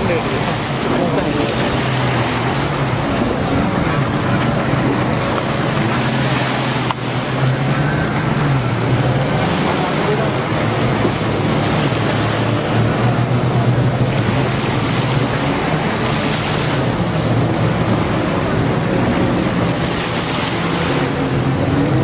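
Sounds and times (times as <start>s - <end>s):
jet ski engine drone: 0.0s - 22.0s
water spray rushing: 0.0s - 22.0s
wind buffeting microphone: 0.0s - 22.0s.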